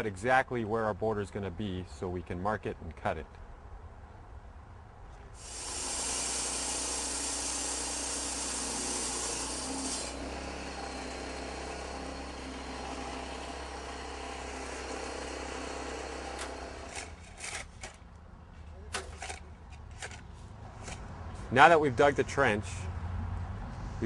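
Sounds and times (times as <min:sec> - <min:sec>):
power saw cutting concrete: 0:05.4 - 0:17.2.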